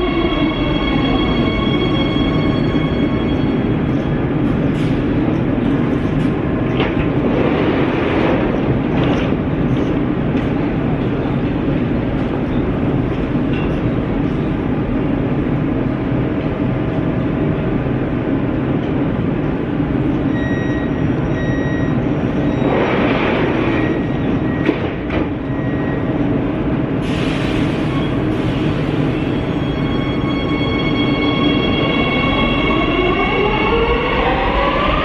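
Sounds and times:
train doors hissing: 27.0 - 29.9.

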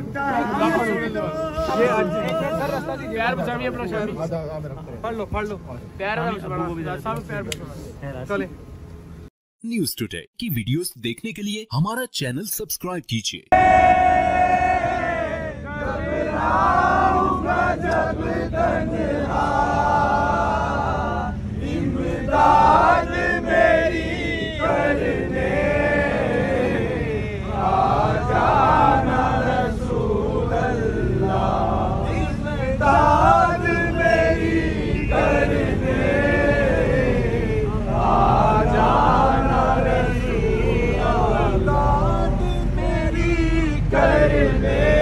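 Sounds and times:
crowd of men chanting: 0.0 - 4.2, 13.5 - 45.0
steady low hum: 13.6 - 45.0.

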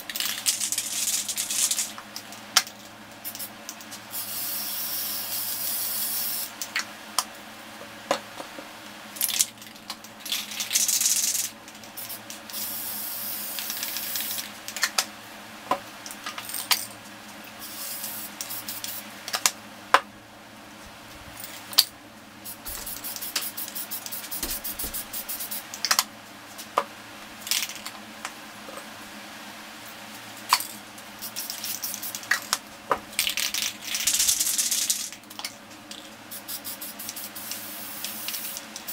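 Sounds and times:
spray paint can hissing: 3.2 - 3.5, 4.1 - 6.5, 10.3 - 14.5, 17.6 - 19.0, 22.4 - 25.8, 31.2 - 32.5, 33.2 - 35.1, 36.3 - 38.9.

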